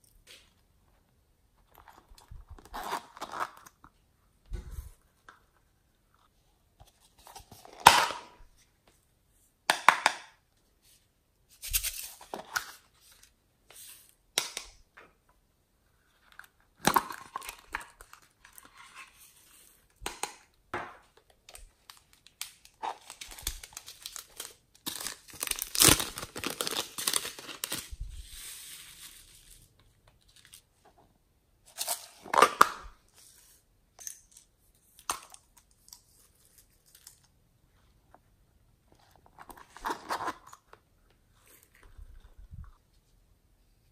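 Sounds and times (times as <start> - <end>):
plastic cups crinkling: 16.8 - 18.7, 21.2 - 30.6.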